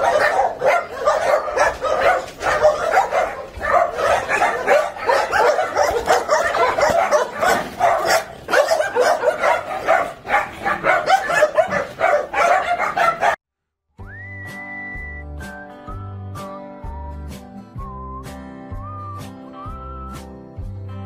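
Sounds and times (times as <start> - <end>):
many dogs barking: 0.0 - 13.4.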